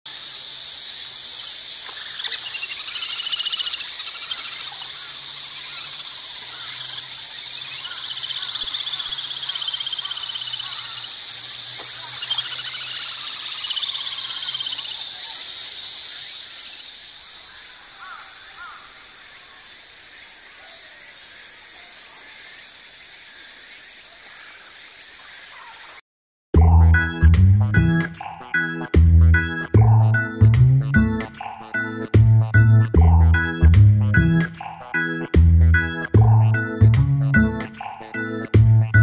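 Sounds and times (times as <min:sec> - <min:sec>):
cicadas droning: 0:00.1 - 0:26.0
chicks calling: 0:00.2 - 0:19.7
birds high rapid trilling: 0:01.2 - 0:22.5.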